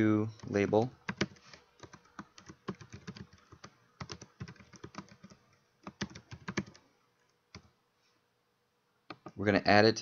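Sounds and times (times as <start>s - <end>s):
typing on computer keyboard: 0.4s - 6.8s.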